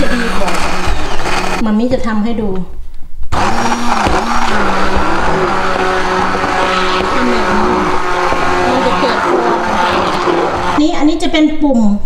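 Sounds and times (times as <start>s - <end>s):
stick blender motor whine: 0.0s - 1.6s, 3.3s - 10.8s.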